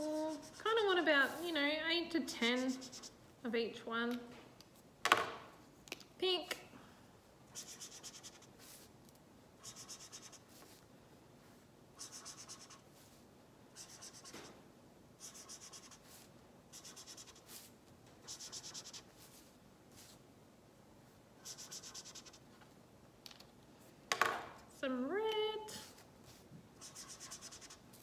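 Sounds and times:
marker scratching on paper: 0.0s - 1.5s, 2.4s - 3.2s, 7.5s - 8.9s, 9.6s - 10.8s, 12.0s - 13.1s, 13.7s - 14.6s, 15.2s - 20.2s, 21.4s - 22.5s, 25.8s - 28.0s.

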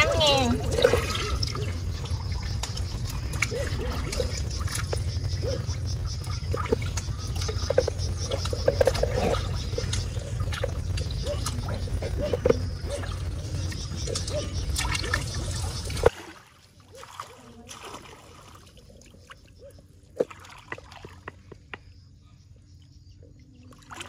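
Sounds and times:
loud low rumble: 0.0s - 16.0s
water trickling and splashing: 0.0s - 21.7s, 23.5s - 24.0s.

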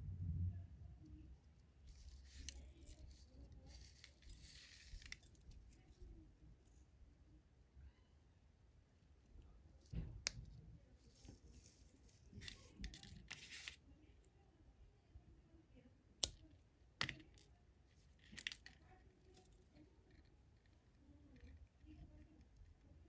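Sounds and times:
fishing line handling sounds: 1.8s - 6.2s, 9.8s - 13.8s, 16.2s - 19.8s.

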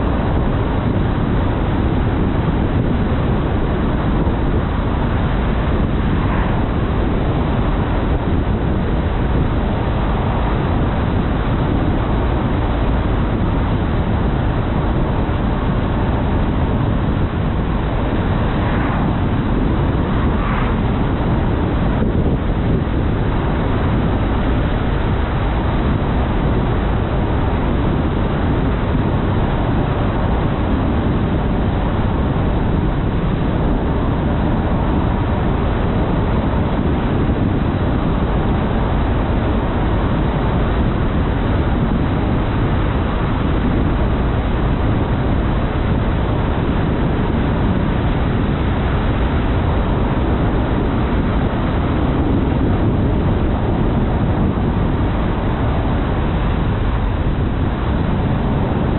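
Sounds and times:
car tyre and wind noise: 0.0s - 58.9s.

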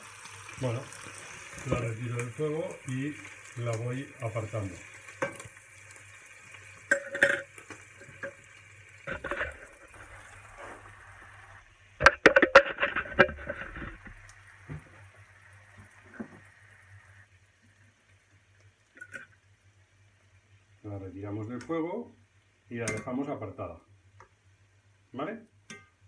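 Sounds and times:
meat sizzling in oil: 0.0s - 12.0s, 12.8s - 20.7s.

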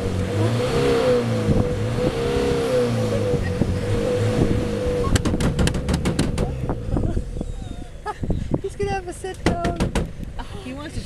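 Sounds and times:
vehicle engine revving: 0.0s - 9.4s
sharp knocks: 5.2s - 6.6s, 9.4s - 10.2s.

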